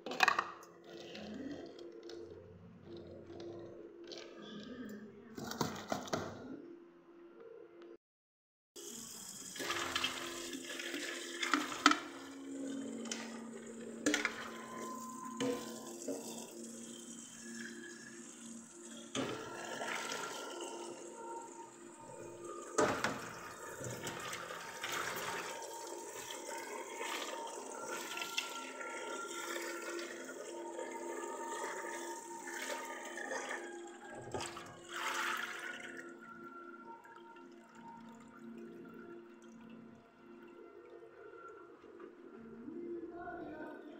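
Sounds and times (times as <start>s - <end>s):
tap water running into colander: 8.8s - 36.2s.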